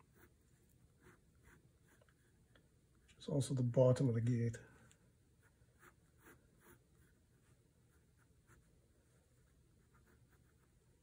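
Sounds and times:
pencil scratching on paper: 0:00.0 - 0:02.4, 0:05.4 - 0:11.0.

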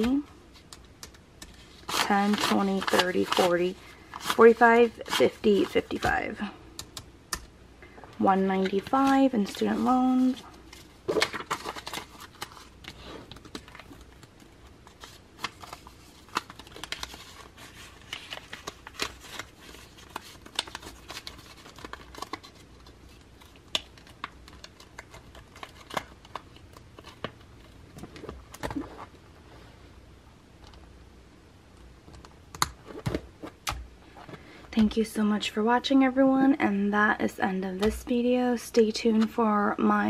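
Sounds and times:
paper banknotes rustling: 0:01.4 - 0:06.4, 0:08.5 - 0:27.4.

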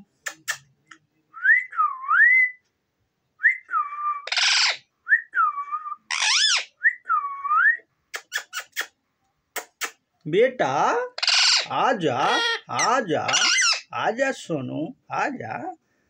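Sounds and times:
parakeet squawk: 0:04.3 - 0:04.8, 0:06.1 - 0:06.8, 0:11.2 - 0:13.9.

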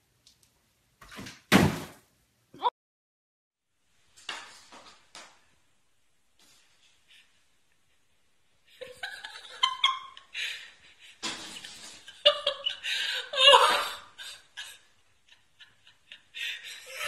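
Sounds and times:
person laughing: 0:11.6 - 0:17.0.

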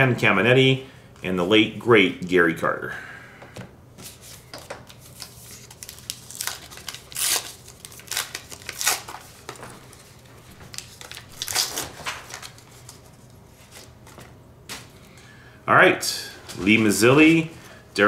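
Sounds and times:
foil wrapper crinkling and tearing: 0:04.9 - 0:13.1.

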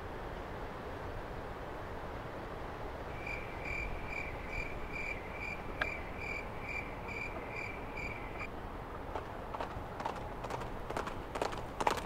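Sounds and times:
cricket chirping: 0:03.1 - 0:08.5.

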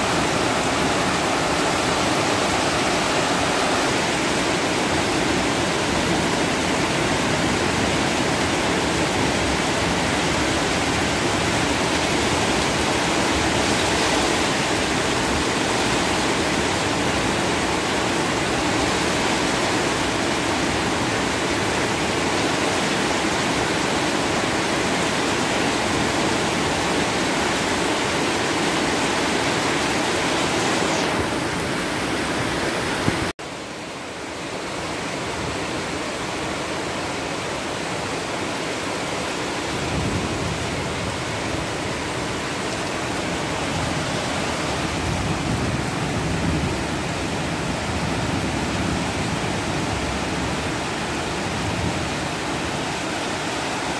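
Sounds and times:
heavy rain pouring: 0:00.0 - 0:53.9.

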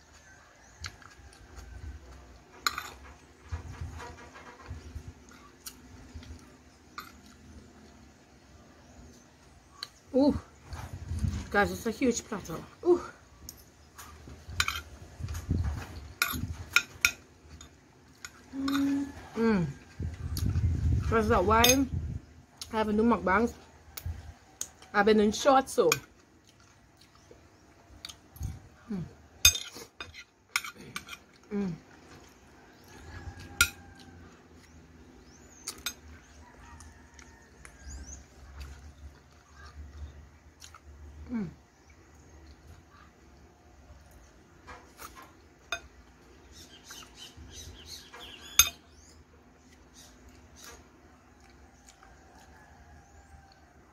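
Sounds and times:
soft chewing: 0:00.0 - 0:11.6, 0:12.8 - 0:21.1, 0:25.8 - 0:53.9
person humming mm: 0:41.2 - 0:41.6
metal spoon clinking on plate: 0:48.6 - 0:48.8.

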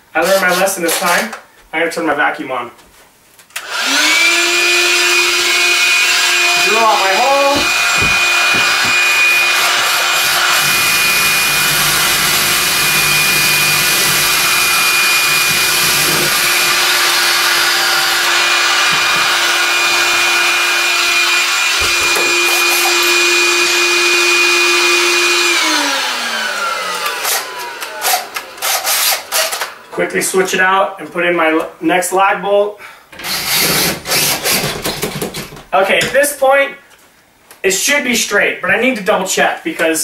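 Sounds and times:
cordless drill boring into wood: 0:03.6 - 0:29.8, 0:33.2 - 0:35.0
vacuum cleaner running: 0:03.6 - 0:29.9.

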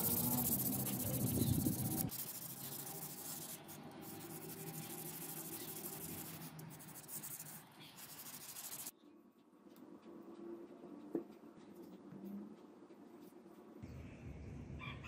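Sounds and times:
sandpaper scrubbing metal blade: 0:00.0 - 0:08.9.

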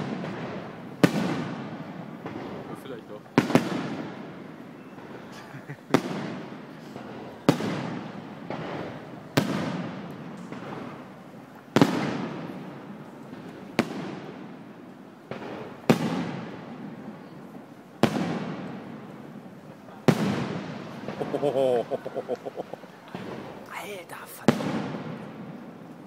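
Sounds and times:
firework shells booming: 0:00.0 - 0:05.2, 0:05.9 - 0:11.2, 0:11.8 - 0:14.6, 0:15.3 - 0:17.0, 0:18.0 - 0:23.7, 0:24.5 - 0:25.9.

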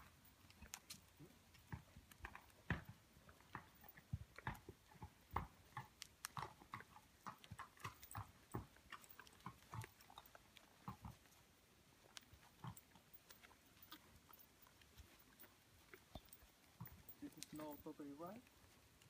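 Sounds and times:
hooves thudding on sand: 0:00.0 - 0:19.0.

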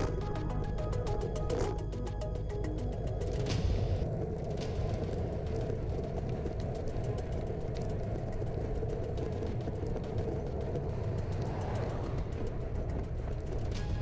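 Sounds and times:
tyre road noise: 0:00.0 - 0:14.0
faint ticks: 0:04.0 - 0:14.0.

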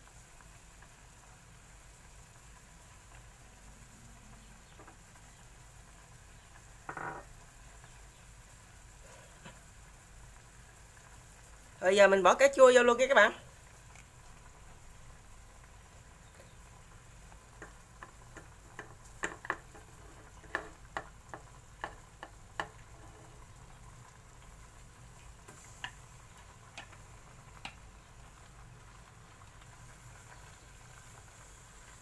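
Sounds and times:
pot simmering hiss: 0:00.0 - 0:32.0
chopsticks tapping on metal: 0:17.6 - 0:22.8, 0:26.7 - 0:27.0.

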